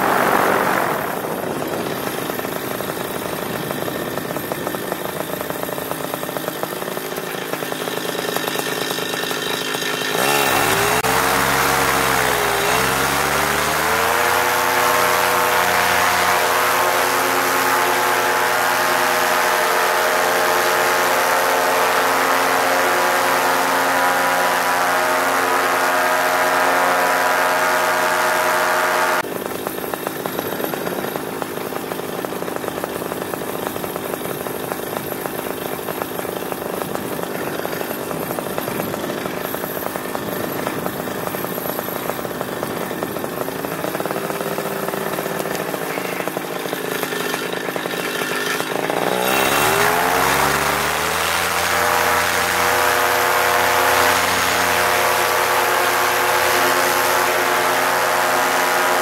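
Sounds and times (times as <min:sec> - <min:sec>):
rushing air: 0:00.0 - 0:02.2
paramotor engine and propeller: 0:00.0 - 0:59.0.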